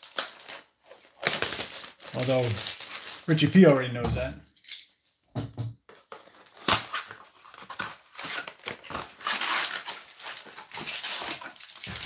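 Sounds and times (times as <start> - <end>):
wrapping crinkling and ripping: 0.0 - 3.6, 6.0 - 12.0.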